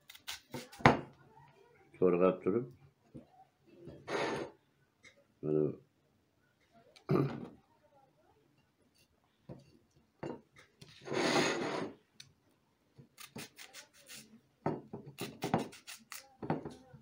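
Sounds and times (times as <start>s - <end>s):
knife slicing onion: 0.0s - 1.1s, 13.0s - 14.3s, 14.9s - 16.6s.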